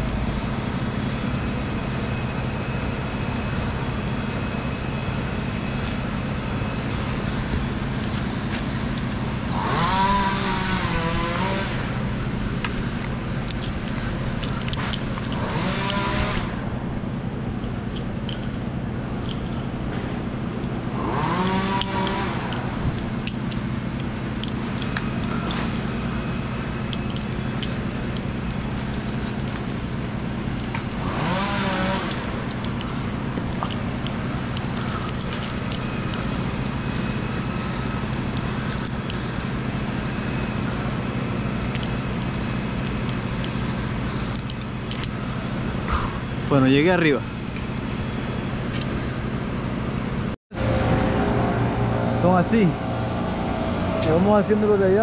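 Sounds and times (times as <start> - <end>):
chainsaw idling and cutting: 9.4 - 12.6, 14.8 - 16.8, 20.8 - 47.8.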